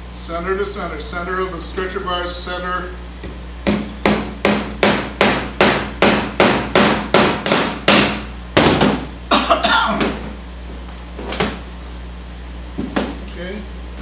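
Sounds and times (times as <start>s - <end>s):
hammer striking a tack: 3.6s - 9.0s.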